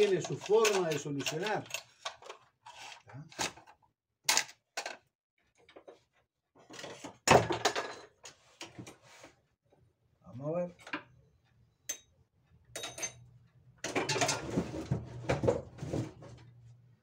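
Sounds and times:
hand tools clattering: 0.0 - 2.0.

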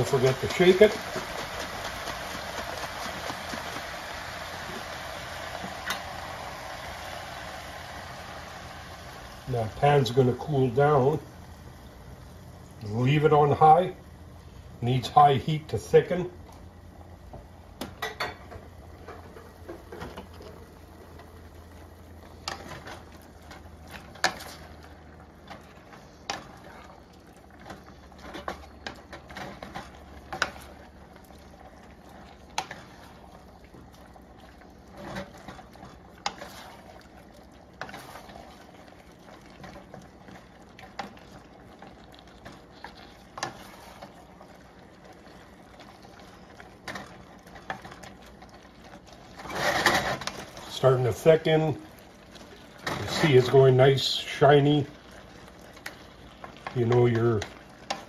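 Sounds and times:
food sizzling in a pan: 0.0 - 58.0
wooden spatula scraping a pan: 34.9 - 37.1, 37.8 - 38.8, 42.4 - 44.3, 48.9 - 51.3, 52.4 - 54.8.

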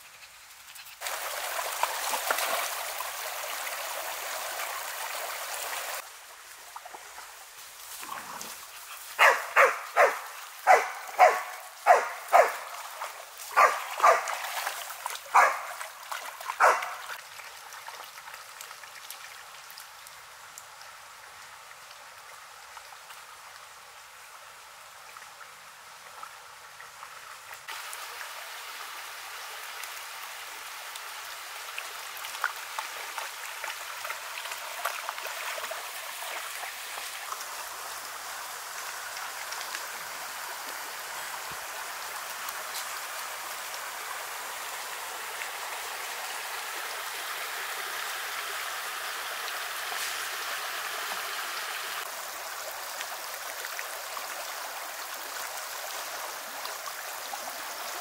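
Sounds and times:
stream running over stones: 0.0 - 58.0
dog splashing through water: 7.9 - 17.2.

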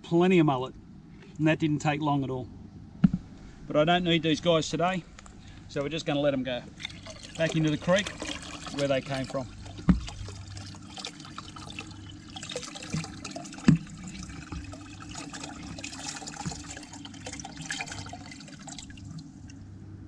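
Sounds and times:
water pouring and splashing: 6.7 - 19.6.

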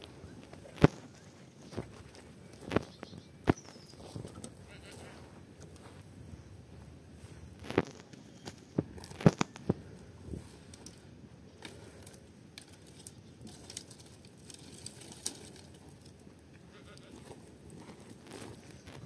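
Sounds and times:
dry sticks snapping: 7.6 - 9.8, 11.6 - 16.1.

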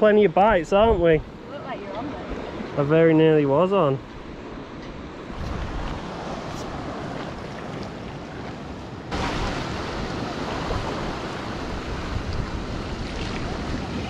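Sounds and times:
sea waves washing: 0.0 - 14.0
wind rumbling on microphone: 0.4 - 1.3, 4.5 - 14.0.

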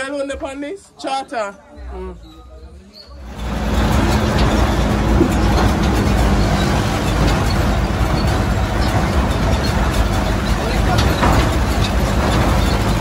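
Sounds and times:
tractor engine running: 3.2 - 13.0
wagon rumbling and rattling: 3.2 - 13.0.

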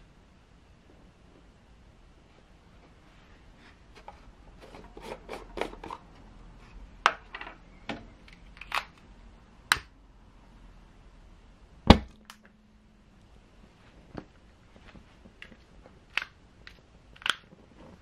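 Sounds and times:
faint steady hum: 0.0 - 18.0
metal lid unscrewing: 4.0 - 6.1
alcohol flaring bang: 11.9 - 12.3.

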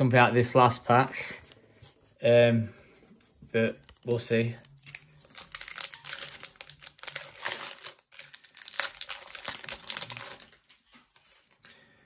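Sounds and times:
foil wrapper crinkling: 3.8 - 11.7.

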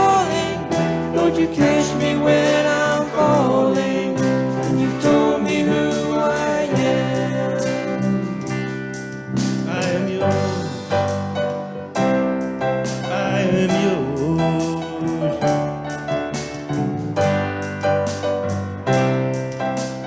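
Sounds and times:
drum kit beat: 0.0 - 20.0
electric bass: 0.0 - 20.0
electric guitar: 0.0 - 20.0
electric keyboard: 0.0 - 20.0.

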